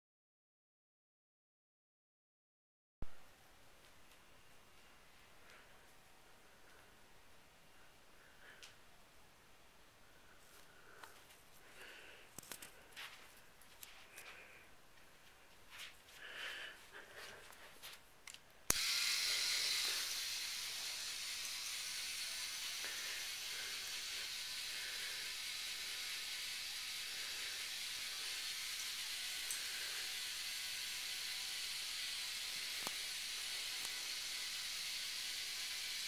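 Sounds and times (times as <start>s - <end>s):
toy motor whirring: 18.7s - 36.0s.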